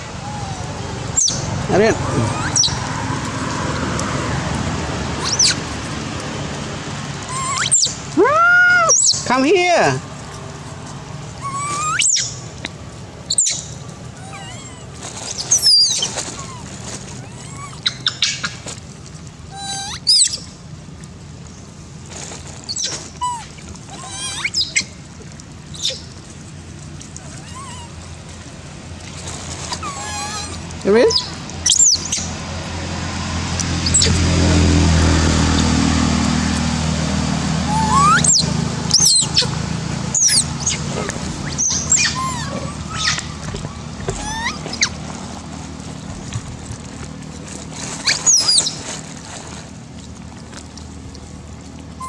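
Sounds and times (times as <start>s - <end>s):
low steady hum: 0.0s - 52.0s
baby monkey squeaks: 1.2s - 1.5s, 2.3s - 2.8s, 5.2s - 5.6s, 7.3s - 8.0s, 11.4s - 12.4s, 13.3s - 14.8s, 15.4s - 16.6s, 19.6s - 20.4s, 22.7s - 24.9s, 29.7s - 32.3s, 33.8s - 34.2s, 37.7s - 39.5s, 40.1s - 40.8s, 41.4s - 43.3s, 44.1s - 44.9s, 48.0s - 48.8s.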